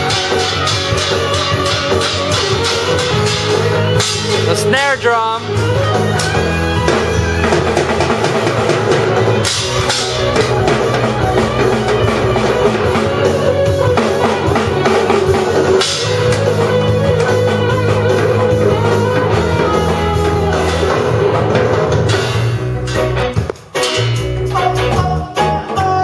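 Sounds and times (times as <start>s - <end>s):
child's toy drum kit struck: 0.0s - 13.1s, 13.7s - 24.4s
rock song with guitar and drums: 0.0s - 26.0s.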